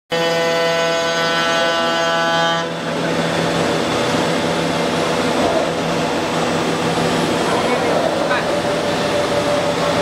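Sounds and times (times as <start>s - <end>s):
rough noisy whir: 2.6s - 10.0s.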